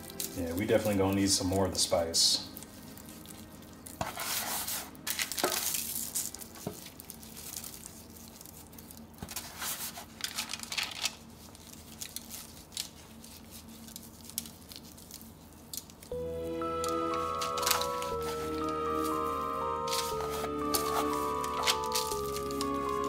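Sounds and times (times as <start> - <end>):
aluminium foil crinkling: 0.0 - 16.1, 16.8 - 23.0
raw chicken squishing: 5.2 - 9.5, 11.2 - 16.1.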